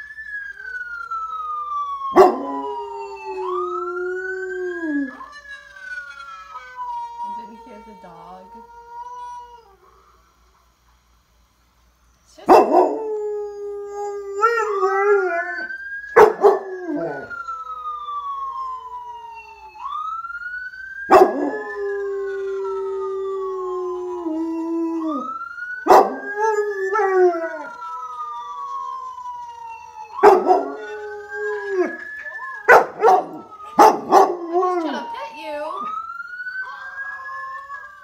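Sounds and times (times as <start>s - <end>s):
ambulance siren wailing: 0.0s - 9.7s, 12.4s - 38.0s
dog howling: 30.2s - 32.0s, 32.6s - 35.0s.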